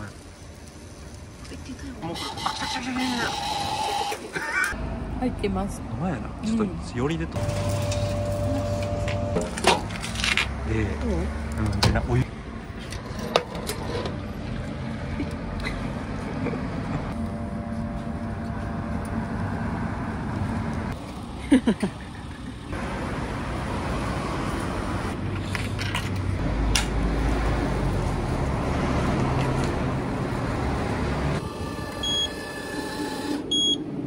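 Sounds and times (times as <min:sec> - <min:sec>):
vending machine humming: 0:07.4 - 0:10.0, 0:30.0 - 0:34.0.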